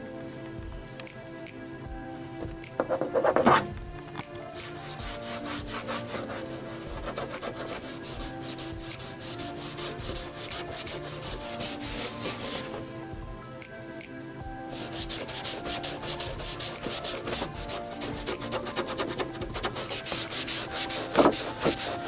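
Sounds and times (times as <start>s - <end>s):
rag rubbing over painted surface: 4.6s - 12.8s, 14.7s - 22.0s.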